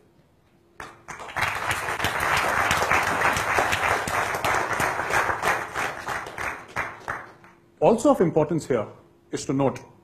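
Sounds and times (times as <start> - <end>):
audience applauding: 0.8 - 7.6.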